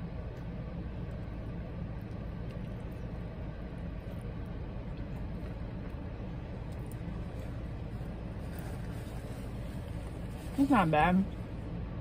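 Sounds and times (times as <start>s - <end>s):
car idling rumble: 0.0s - 12.0s
faint chewing clicks: 0.2s - 7.6s.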